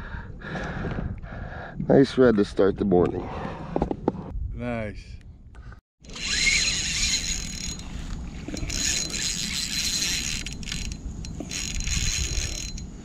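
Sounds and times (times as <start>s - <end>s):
fishing reel whirring: 6.0s - 12.9s.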